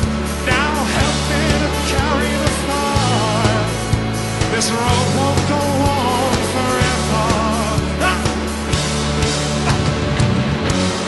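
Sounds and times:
drum hits: 0.0s - 11.0s
loud rock band playing: 0.0s - 11.0s.

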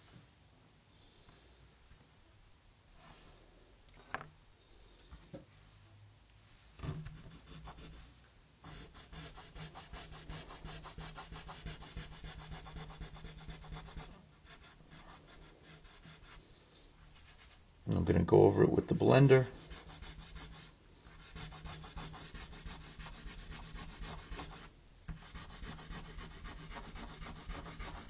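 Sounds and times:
pencil scratching on paper: 7.1s - 16.4s, 19.4s - 28.0s.

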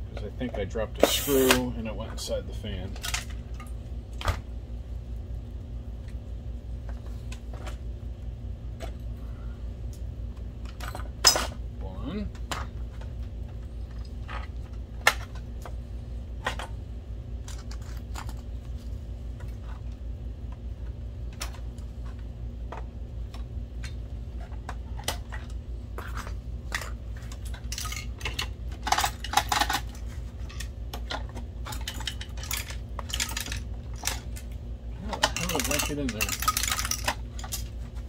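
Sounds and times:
steady low hum: 0.0s - 38.0s
plastic parts clattering: 24.4s - 34.4s, 35.1s - 37.7s.

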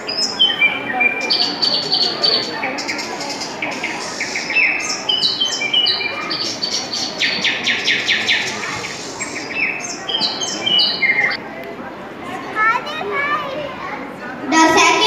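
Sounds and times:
small birds chirping and whistling: 0.0s - 11.4s.

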